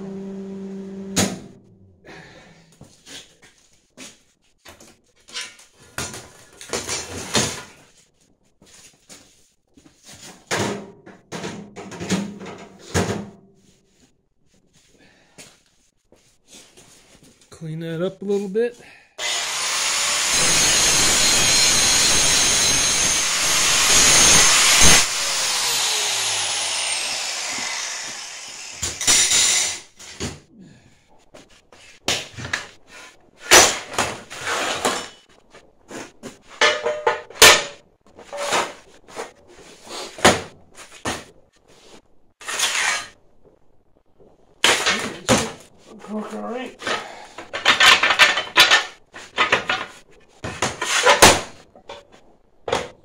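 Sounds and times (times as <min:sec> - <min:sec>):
grinder spinning down whine: 0:19.2 - 0:29.3
angle grinder grinding steel: 0:19.2 - 0:29.9
steel and tools clanking: 0:19.9 - 0:30.2, 0:36.6 - 0:38.7, 0:46.9 - 0:50.0.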